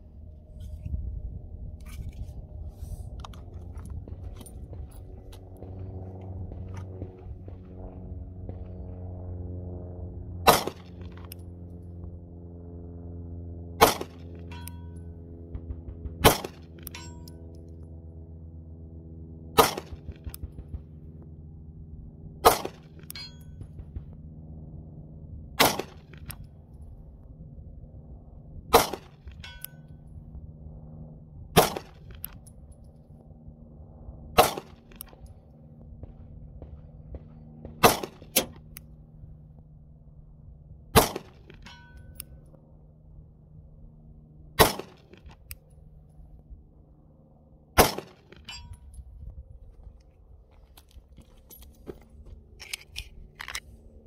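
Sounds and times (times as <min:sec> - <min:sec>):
pistol shots: 0:10.4 - 0:11.0, 0:13.8 - 0:14.6, 0:15.6 - 0:17.1, 0:19.6 - 0:20.8, 0:22.4 - 0:22.9, 0:25.6 - 0:26.2, 0:28.7 - 0:29.2, 0:31.6 - 0:32.1, 0:34.4 - 0:35.0, 0:36.0 - 0:38.6, 0:40.9 - 0:41.7, 0:44.6 - 0:45.2, 0:47.8 - 0:48.5
distant ring of steel target: 0:10.4 - 0:11.6, 0:13.7 - 0:17.6, 0:19.6 - 0:21.1, 0:22.4 - 0:24.4, 0:28.7 - 0:30.3, 0:40.9 - 0:42.5, 0:44.6 - 0:45.2, 0:47.7 - 0:49.1.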